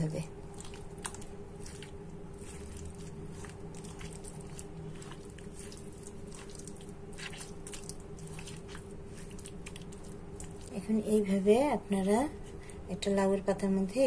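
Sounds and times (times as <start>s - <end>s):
steady low hum: 0.0s - 14.0s
hand squishing raw chicken: 0.4s - 10.8s.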